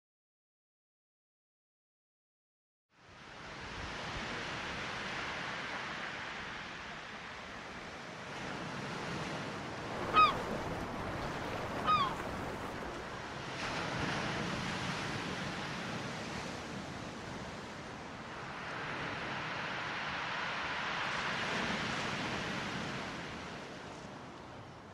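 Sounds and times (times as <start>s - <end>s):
ocean waves: 3.0s - 24.9s
bird calls: 10.1s - 10.6s, 11.7s - 12.7s.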